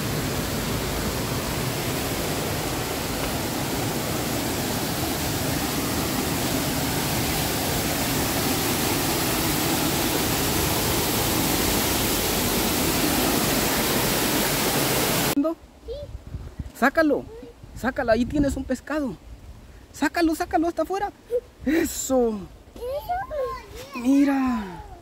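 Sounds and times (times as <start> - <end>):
waterfall splashing into pool: 0.0 - 15.4.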